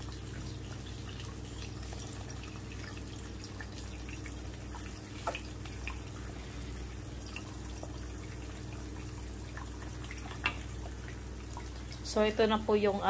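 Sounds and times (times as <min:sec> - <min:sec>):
eggs sizzling in oil: 0:00.0 - 0:13.0
steady low hum: 0:00.0 - 0:13.0
oil crackling and popping: 0:07.0 - 0:12.1.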